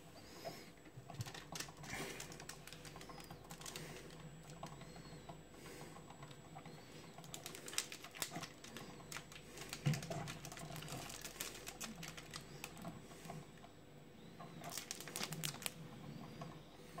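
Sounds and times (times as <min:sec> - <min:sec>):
foil bag crinkling: 0:01.2 - 0:04.6, 0:07.1 - 0:13.4, 0:14.6 - 0:15.8.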